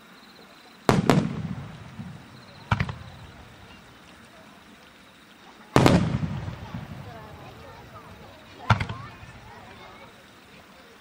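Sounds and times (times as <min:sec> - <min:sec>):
firework shells booming: 0:00.9 - 0:04.0, 0:05.7 - 0:10.0.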